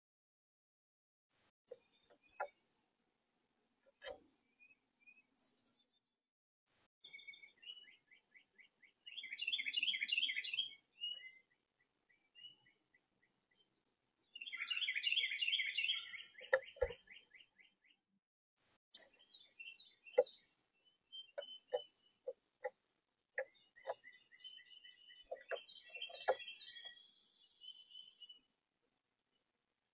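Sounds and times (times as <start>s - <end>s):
songbirds singing: 1.7s - 6.3s, 7.0s - 18.2s, 18.9s - 29.9s
short bird chirps: 7.0s - 11.6s, 14.3s - 18.0s, 19.0s - 22.8s, 23.4s - 28.5s.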